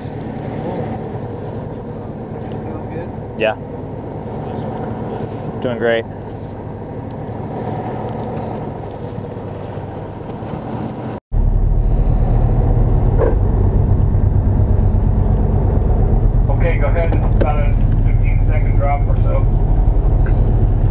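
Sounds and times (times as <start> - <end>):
boat engine running: 0.0 - 20.9
wind: 0.0 - 20.9.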